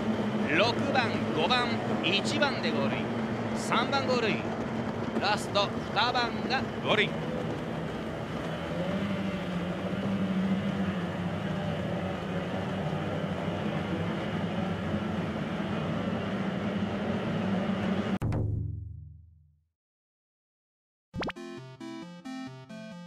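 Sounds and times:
outboard motors droning: 0.0s - 18.2s.

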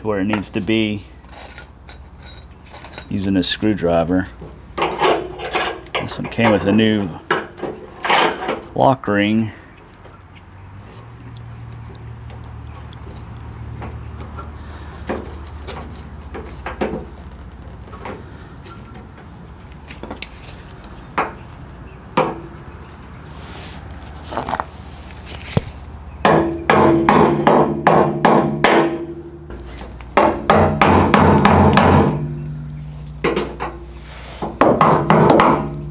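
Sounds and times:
loud ringing metal strikes: 30.2s - 32.6s.

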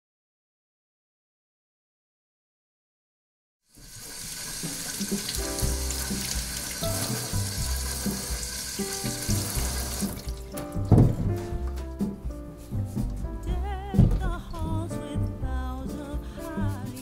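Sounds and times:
running water: 3.7s - 11.2s
background music with bass line: 5.4s - 17.0s.

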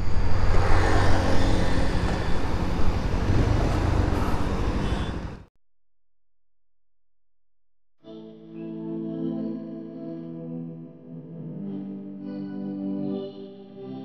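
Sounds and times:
road noise: 0.0s - 5.5s.

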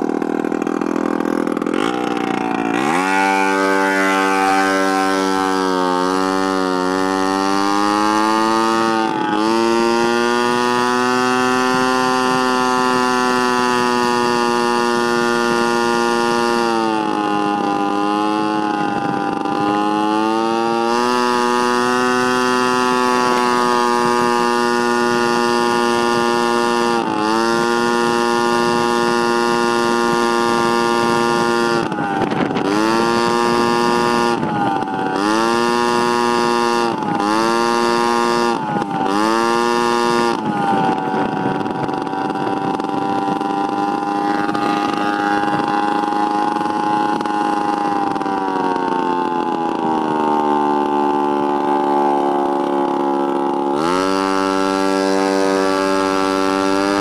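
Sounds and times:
scooter engine running: 0.0s - 57.0s.

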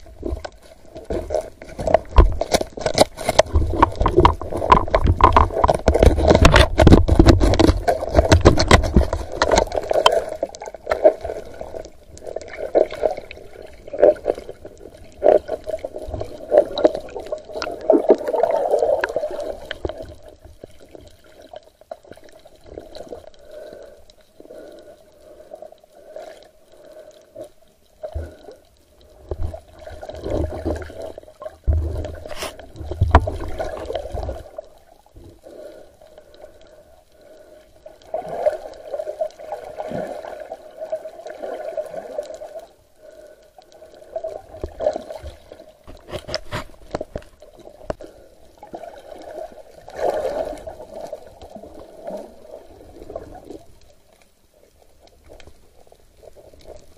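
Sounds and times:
muffled underwater water sloshing: 0.0s - 56.9s
knocking and scraping: 1.8s - 9.7s, 45.8s - 47.3s.

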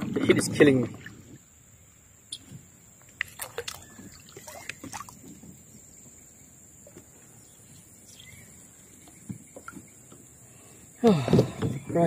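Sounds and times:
kayak paddle splashing water: 3.0s - 6.2s.

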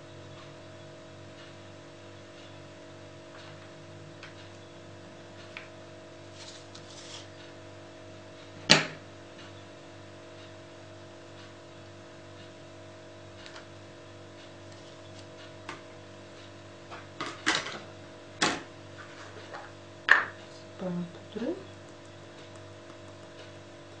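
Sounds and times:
faint electrical hum: 0.0s - 24.0s.

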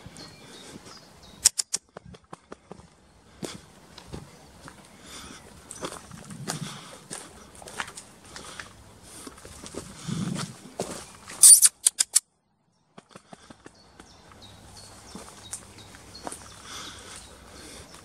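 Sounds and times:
footsteps on dry leaves: 2.8s - 11.4s, 14.3s - 18.0s.

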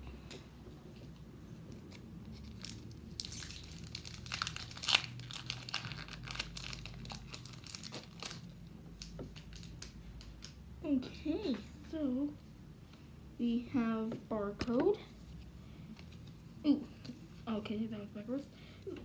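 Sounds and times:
foil wrapper crackling: 2.4s - 10.5s.

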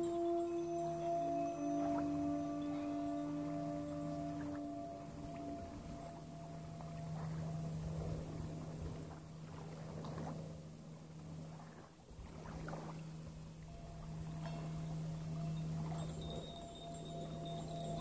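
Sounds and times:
background music drone: 0.0s - 11.6s, 12.8s - 18.0s
paddle splashing water: 8.0s - 13.7s.

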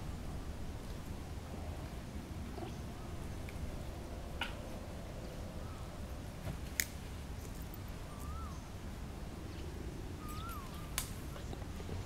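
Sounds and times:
steady low rumble: 0.0s - 12.0s
faint whistled chirps: 8.1s - 8.7s, 10.2s - 11.4s.

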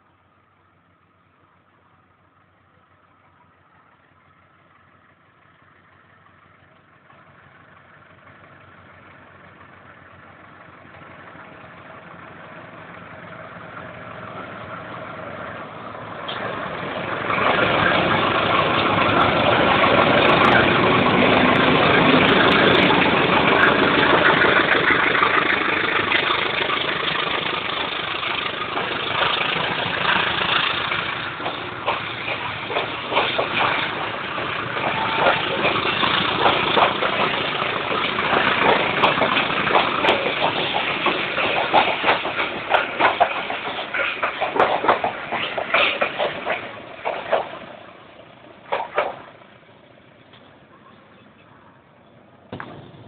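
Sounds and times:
diesel locomotive engine: 0.0s - 53.0s
train coaches rolling on rails: 0.0s - 53.0s.

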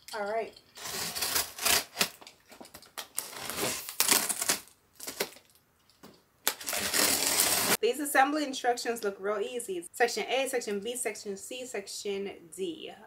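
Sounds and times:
cardboard packaging rustling: 0.8s - 5.6s, 6.4s - 7.8s.

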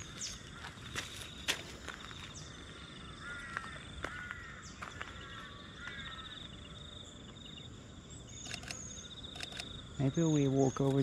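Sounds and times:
harsh bird calls: 0.0s - 11.0s
sharp clicks: 8.4s - 9.8s.

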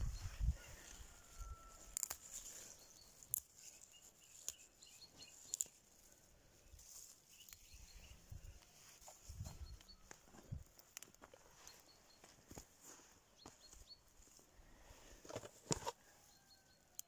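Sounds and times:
faint leaf rustling: 0.0s - 16.6s
herb stems snapping: 1.8s - 4.6s.

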